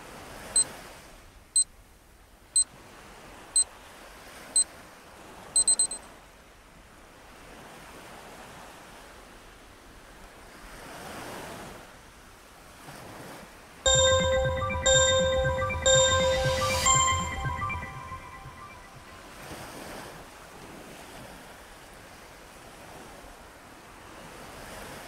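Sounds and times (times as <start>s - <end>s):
short high beeps: 5.6s - 6.0s, 13.9s - 19.2s
ocean surf: 13.9s - 19.2s.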